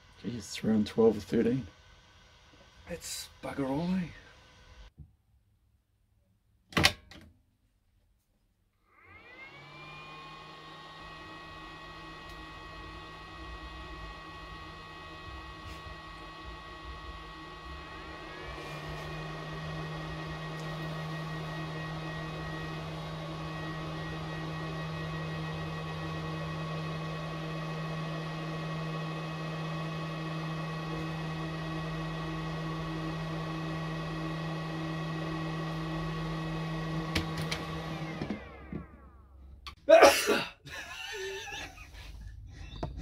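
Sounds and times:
charger cooling fan humming: 0:00.0 - 0:04.9, 0:09.3 - 0:38.5.

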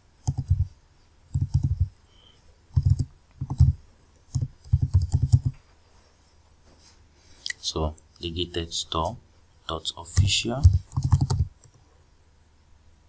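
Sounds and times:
computer keyboard typing: 0:00.2 - 0:00.7, 0:01.3 - 0:01.9, 0:02.7 - 0:05.6, 0:10.1 - 0:11.8.

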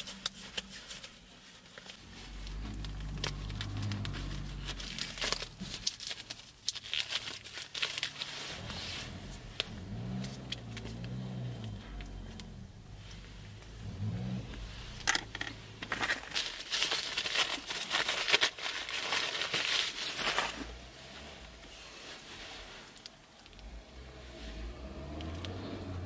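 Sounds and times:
paper napkin crinkling and tearing: 0:00.0 - 0:11.0, 0:15.8 - 0:21.0.

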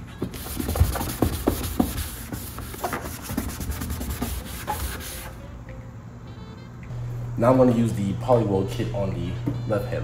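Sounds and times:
wipe rubbing on plastic: 0:00.3 - 0:05.3.

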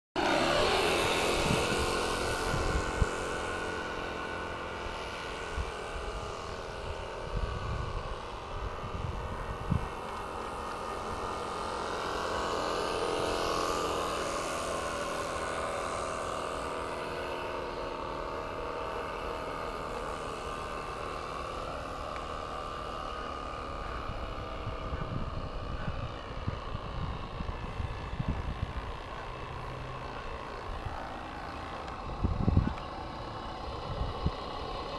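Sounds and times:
model steam engine whirring: 0:00.2 - 0:34.9
wind bumps on microphone: 0:32.2 - 0:32.8.

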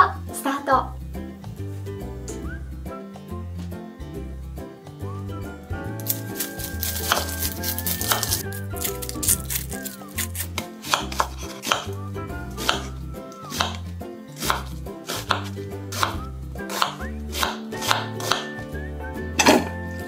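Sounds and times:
knife chopping on cutting board: 0:06.0 - 0:12.0, 0:12.6 - 0:13.8, 0:14.4 - 0:18.6.

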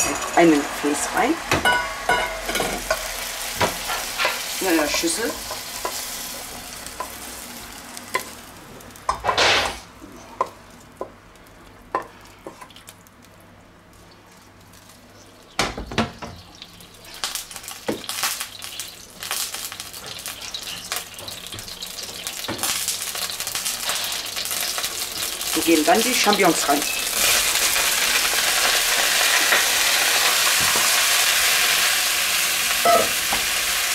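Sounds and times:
oil sizzling in wok: 0:00.0 - 0:11.2, 0:13.9 - 0:33.9
wok knocking on hob: 0:01.5 - 0:03.9, 0:15.6 - 0:16.4.

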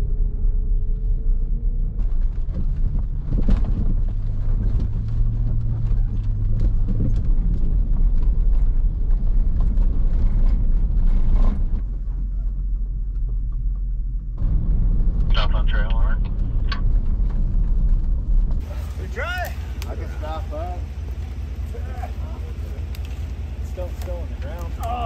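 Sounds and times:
vehicle engine and tyres rumbling: 0:00.0 - 0:25.0.

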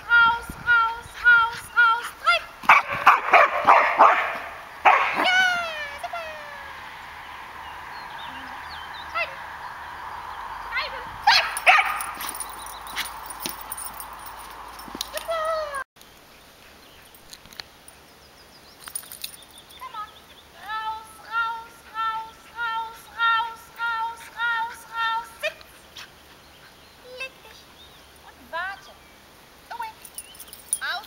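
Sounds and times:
dog yipping: 0:02.7 - 0:05.6, 0:11.3 - 0:13.2.

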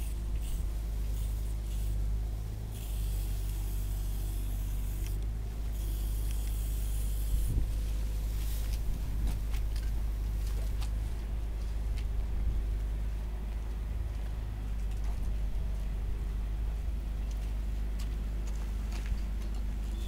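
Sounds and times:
spray paint cans hissing: 0:00.0 - 0:02.0, 0:02.7 - 0:07.6.

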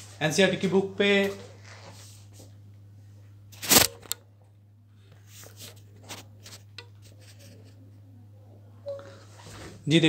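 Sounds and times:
low electrical hum: 0:00.0 - 0:10.0
rustling and handling noises: 0:01.0 - 0:04.2, 0:05.0 - 0:07.9.

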